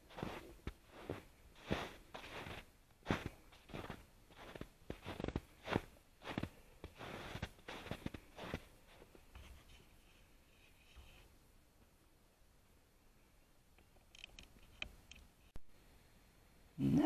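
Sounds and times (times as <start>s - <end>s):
footsteps crunching on snow: 0.0s - 9.7s.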